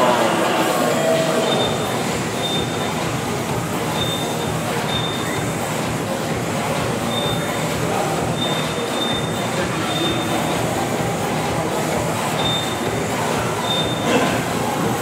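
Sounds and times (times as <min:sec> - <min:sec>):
short high beeps: 0:01.4 - 0:02.9, 0:03.9 - 0:05.5, 0:07.1 - 0:07.6, 0:08.3 - 0:10.7, 0:12.3 - 0:12.9, 0:13.6 - 0:14.1.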